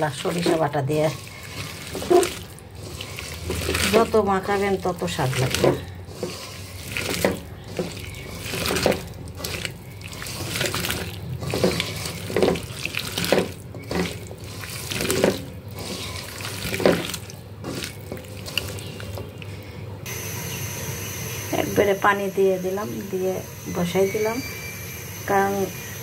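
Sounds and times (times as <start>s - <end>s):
hand mixing food in metal wok: 0.0s - 20.3s.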